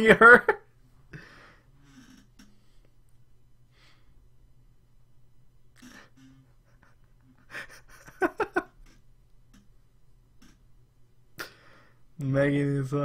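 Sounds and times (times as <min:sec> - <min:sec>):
man laughing: 0:00.0 - 0:00.6, 0:05.8 - 0:09.0.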